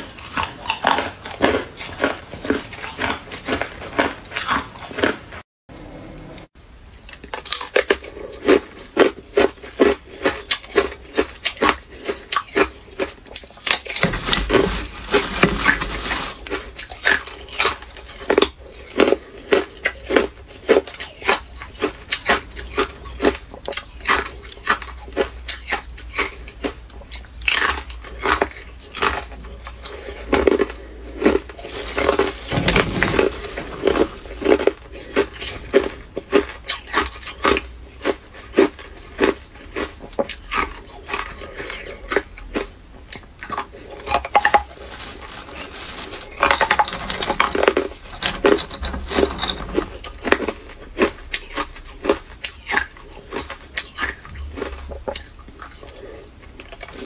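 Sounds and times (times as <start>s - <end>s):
ice being crunched by teeth: 7.2s - 26.3s, 27.5s - 41.3s.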